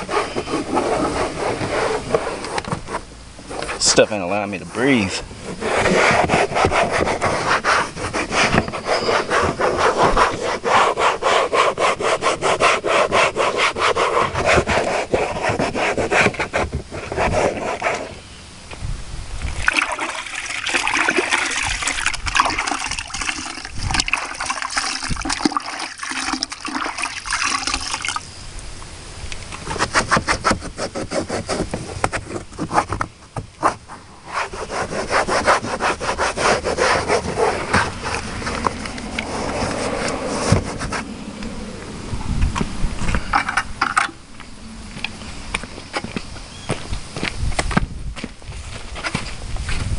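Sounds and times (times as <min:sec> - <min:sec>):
towel scrubbing plastic panel: 0:00.0 - 0:04.2, 0:05.4 - 0:18.2, 0:19.6 - 0:28.1, 0:29.6 - 0:41.1.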